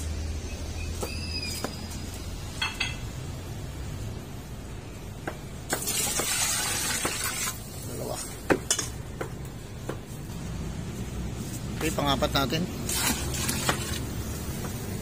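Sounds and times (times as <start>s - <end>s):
metal clinking against pot: 2.6s - 3.1s
water pouring into pot: 5.8s - 7.7s, 12.8s - 14.1s.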